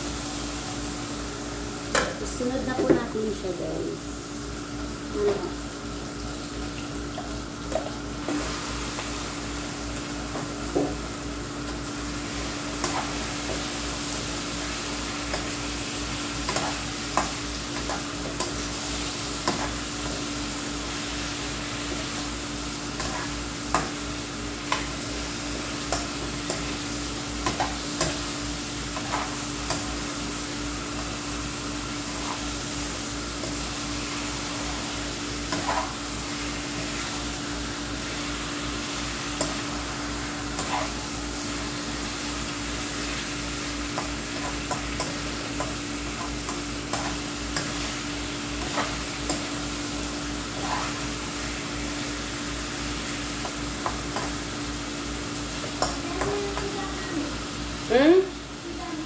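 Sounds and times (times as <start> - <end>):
chicken sizzling in a pan: 0.0 - 59.0
metal spatula scraping pan: 50.5 - 51.1.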